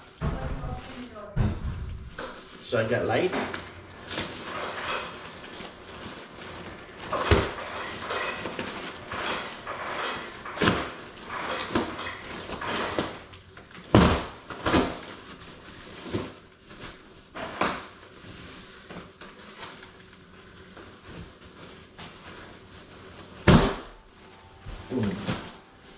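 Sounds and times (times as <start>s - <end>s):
knocks and thumps: 0.2s - 2.4s.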